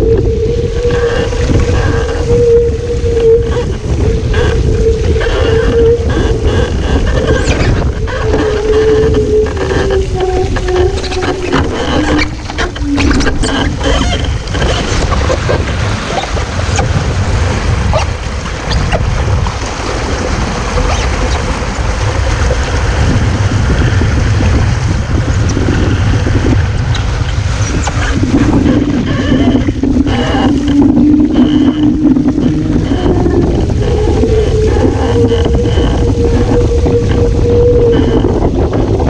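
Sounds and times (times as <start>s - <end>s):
water rushing past boat: 0.0s - 39.0s
wind buffeting microphone: 0.0s - 39.0s.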